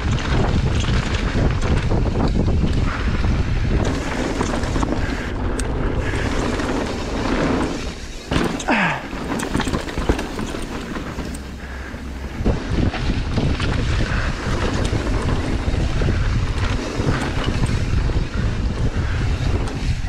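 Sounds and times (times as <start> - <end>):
bike rattling over rocks: 0.0 - 20.0
tyre rumble: 0.0 - 20.0
wind buffeting microphone: 0.0 - 20.0.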